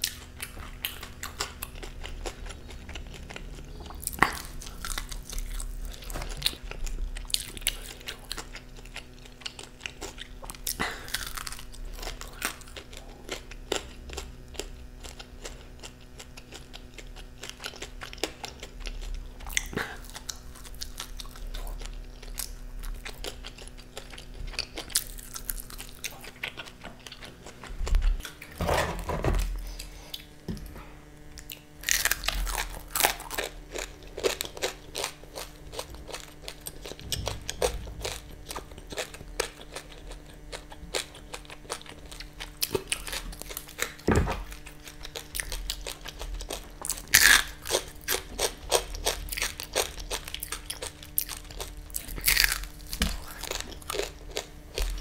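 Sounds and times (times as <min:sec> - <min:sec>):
crunching fried chicken: 0:00.0 - 0:28.6, 0:31.1 - 0:55.0
wet chewing: 0:00.0 - 0:28.6.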